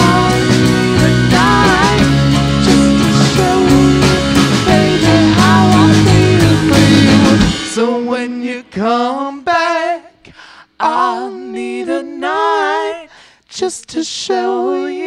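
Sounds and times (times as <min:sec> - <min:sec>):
live band playing: 0:00.0 - 0:08.2
man and woman singing: 0:00.0 - 0:15.0.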